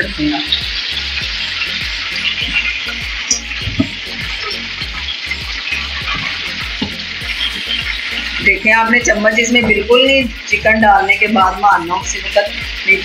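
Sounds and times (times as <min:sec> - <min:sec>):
chicken sizzling in oil: 0:00.0 - 0:13.0.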